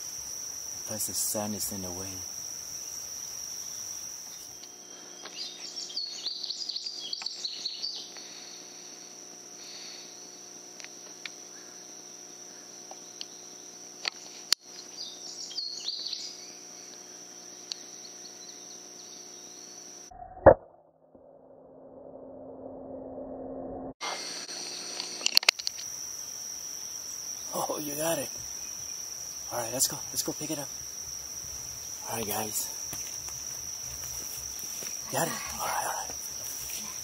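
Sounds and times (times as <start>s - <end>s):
insects buzzing: 0.0s - 20.1s, 24.0s - 37.0s
birds chirping: 0.8s - 10.5s, 11.4s - 19.9s, 26.2s - 37.0s.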